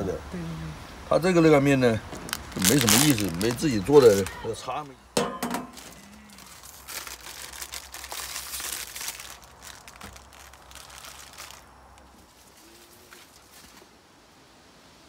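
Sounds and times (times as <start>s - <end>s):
plastic packet crinkling: 2.1s - 4.9s, 5.7s - 12.4s
pot lid clattering: 5.2s - 5.8s.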